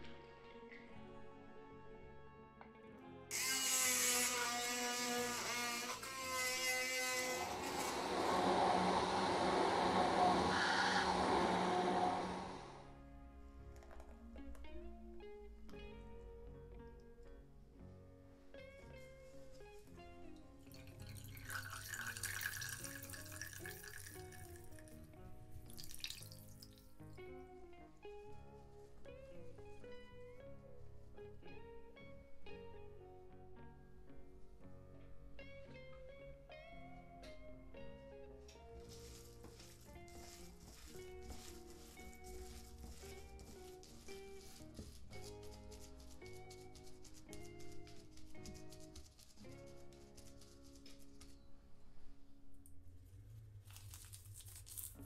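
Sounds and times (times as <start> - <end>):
background music: 0.0 - 55.0
stick blender pureeing potato: 3.3 - 12.8
liquid trickling into a glass: 20.7 - 24.8, 25.7 - 26.8.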